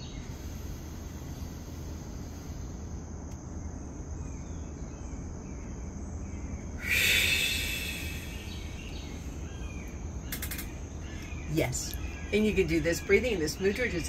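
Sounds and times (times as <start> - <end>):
low hum: 0.0 - 13.9
insects chirring: 0.0 - 14.0
breath blown out through lips: 6.8 - 8.9.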